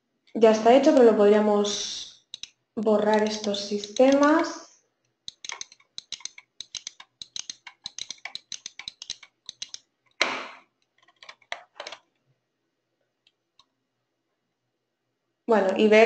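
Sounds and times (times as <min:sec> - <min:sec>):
keyboard and mouse clicks: 0:02.2 - 0:04.5, 0:05.3 - 0:12.2.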